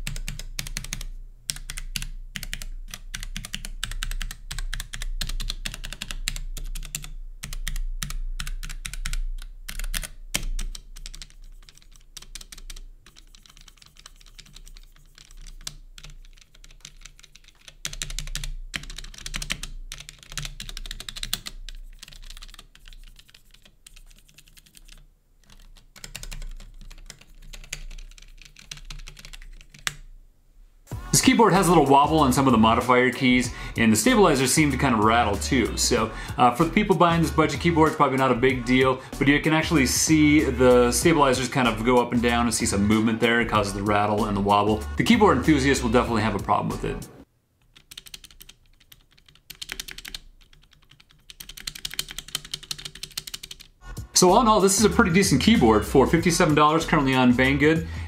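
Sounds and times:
mechanical keyboard typing: 0.0s - 30.0s, 47.6s - 53.8s.

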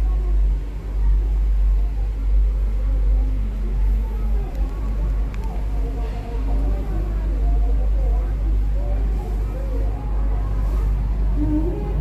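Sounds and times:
cable car cabin rumble: 0.0s - 12.0s
faint wavering tones: 9.1s - 12.0s.

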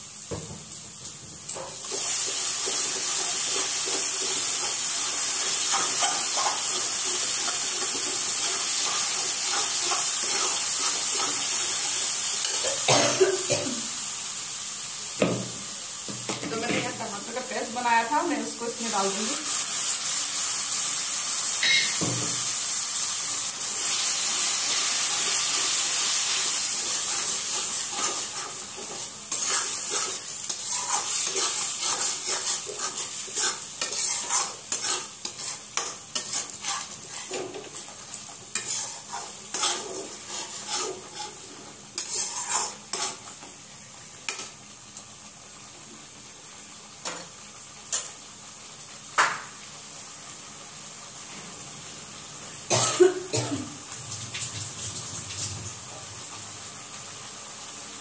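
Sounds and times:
paste sizzling in hot oil: 0.0s - 58.0s
metal spatula scraping pan: 26.9s - 37.8s, 38.5s - 43.2s.

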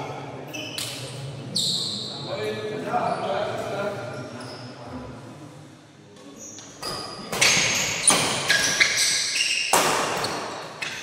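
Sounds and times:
shoes squeaking on court: 6.4s - 11.0s
racket hitting shuttlecock: 9.7s - 11.0s.

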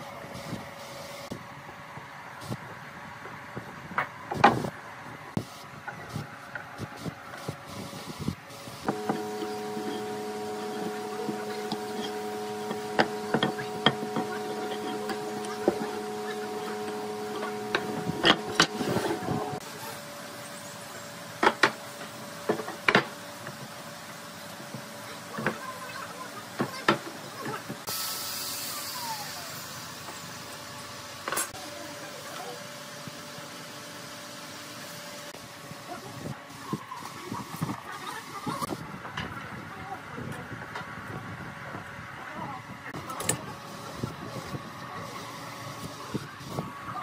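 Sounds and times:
electrical hum: 7.7s - 19.7s.

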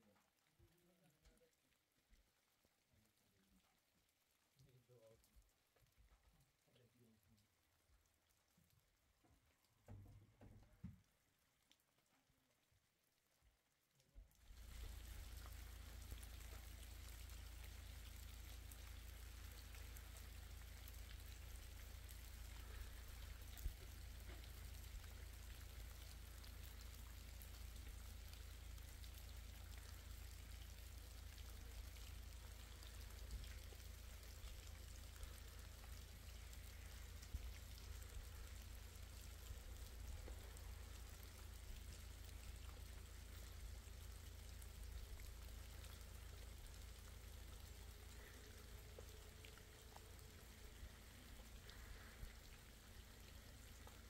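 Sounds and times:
rain pattering: 0.0s - 54.0s
low steady rumble: 14.4s - 54.0s.

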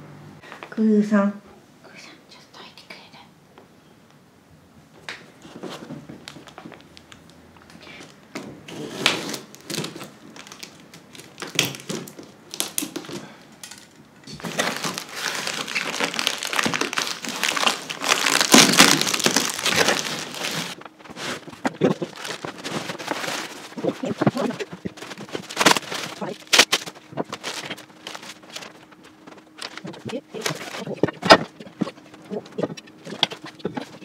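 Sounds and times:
packing wrap crinkling: 6.2s - 7.4s, 8.8s - 34.0s.

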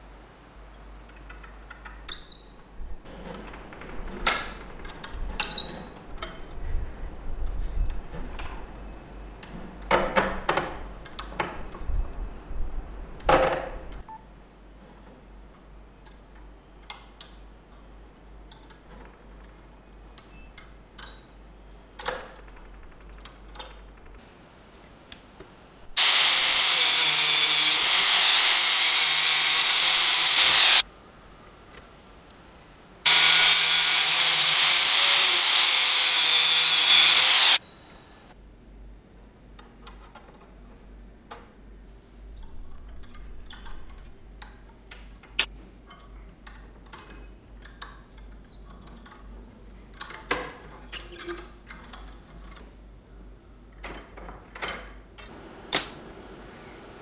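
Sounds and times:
angle grinder cutting steel: 26.0s - 30.8s, 33.1s - 37.6s.

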